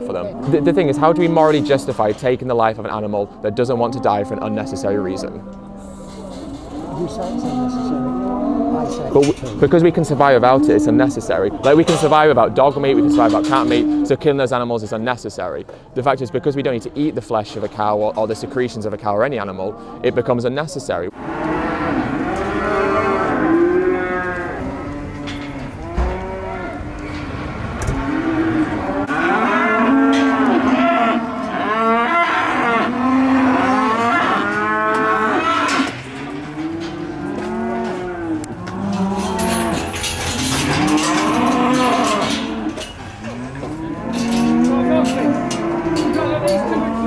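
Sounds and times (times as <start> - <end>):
cattle mooing: 3.3 - 9.4, 10.3 - 12.0, 12.8 - 14.2, 21.1 - 47.0.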